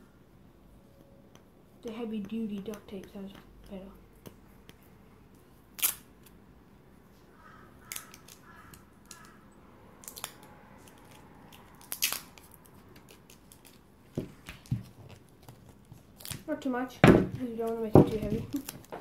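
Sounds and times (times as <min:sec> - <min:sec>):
duct tape ripping: 0:05.7 - 0:06.2, 0:10.0 - 0:13.8.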